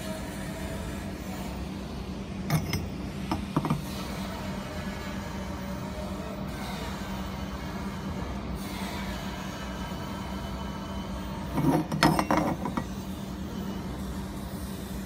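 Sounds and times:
metallic clinks and rattling: 11.6s - 12.9s.

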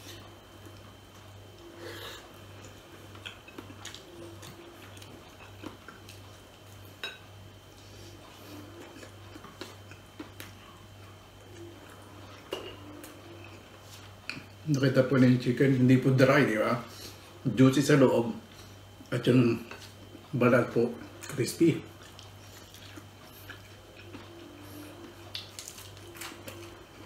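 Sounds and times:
steady low hum: 0.0s - 27.0s
chewing and mouth sounds: 2.6s - 7.0s, 7.8s - 14.6s, 21.0s - 27.0s.

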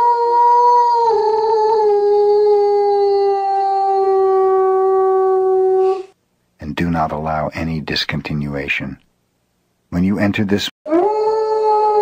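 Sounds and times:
dog howling: 0.0s - 6.2s, 10.9s - 12.0s.

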